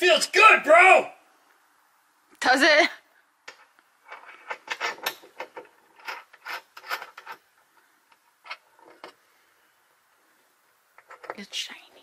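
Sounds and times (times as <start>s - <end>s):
clicking and scraping of handling: 3.4s - 9.3s, 10.9s - 11.4s.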